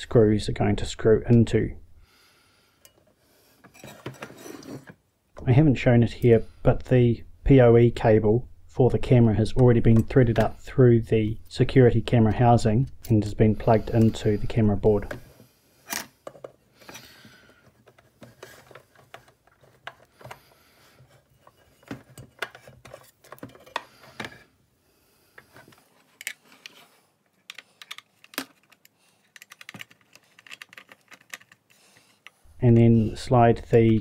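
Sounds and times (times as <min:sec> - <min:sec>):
hands handling plastic housing: 0:15.9 - 0:24.4, 0:25.4 - 0:34.0.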